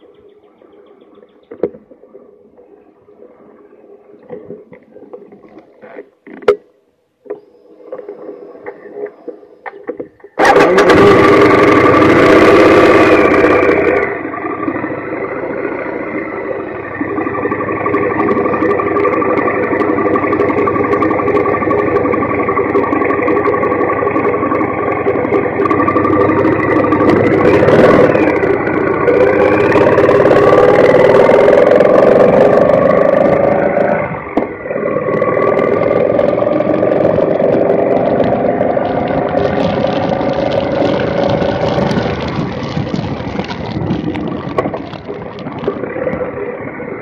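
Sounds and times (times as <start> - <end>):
wind and road noise: 0.0 - 47.0
motorcycle engine running: 10.4 - 47.0.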